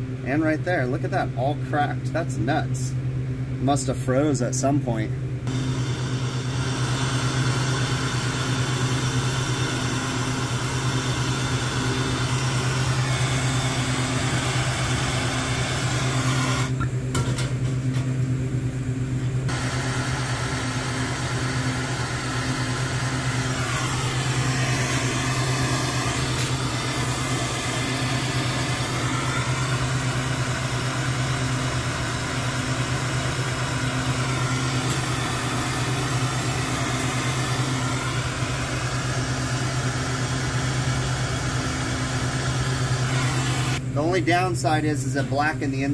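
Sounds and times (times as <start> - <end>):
steady low hum: 0.0 - 45.9
torch hissing: 5.5 - 16.8, 19.5 - 43.8.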